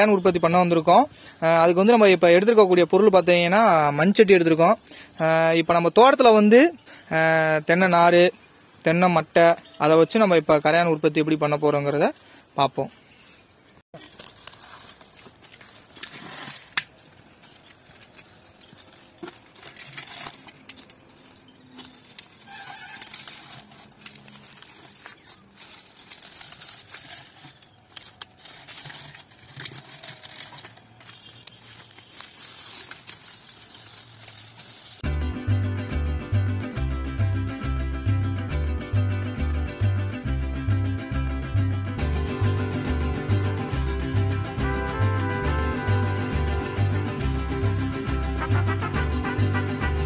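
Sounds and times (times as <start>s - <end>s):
dry fronds rustling and crackling: 13.9s - 35.0s
acoustic guitar music: 35.0s - 50.0s.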